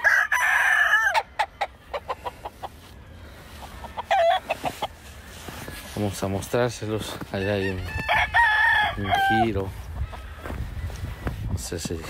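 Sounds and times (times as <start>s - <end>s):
rooster crowing: 0.0s - 2.0s, 3.7s - 4.8s, 7.3s - 10.6s.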